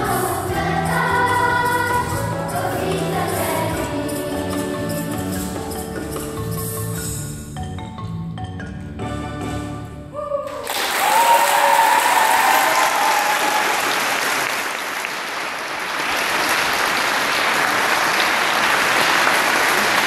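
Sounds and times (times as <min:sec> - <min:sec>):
mallet percussion music: 0:00.0 - 0:10.0
people cheering: 0:10.1 - 0:15.2
audience applause: 0:10.5 - 0:20.0.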